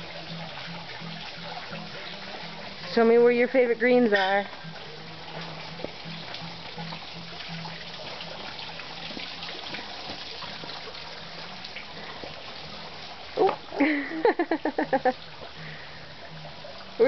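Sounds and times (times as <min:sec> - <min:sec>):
pulsing low hum: 0:00.0 - 0:13.3.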